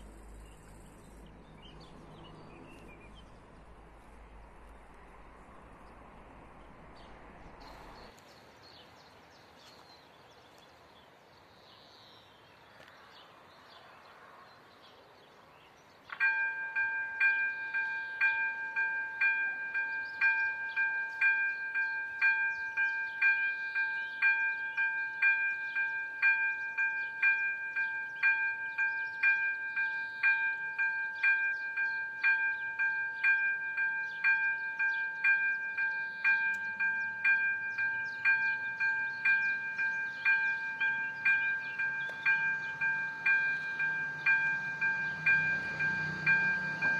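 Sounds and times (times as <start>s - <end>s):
level crossing warning bell: 16.2s - 46.9s.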